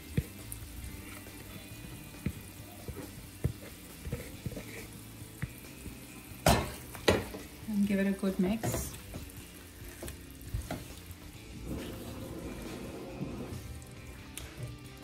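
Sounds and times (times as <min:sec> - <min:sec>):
food sizzling in a frying pan: 0:00.0 - 0:15.0
spatula scraping a pan: 0:02.5 - 0:05.3, 0:08.5 - 0:13.8.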